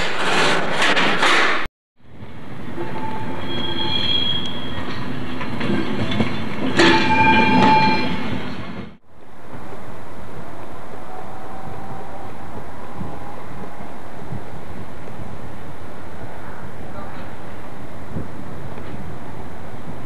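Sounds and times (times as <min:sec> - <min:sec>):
clanks and knocks: 0:00.0 - 0:01.7
train wheels squealing on rails: 0:02.6 - 0:08.9.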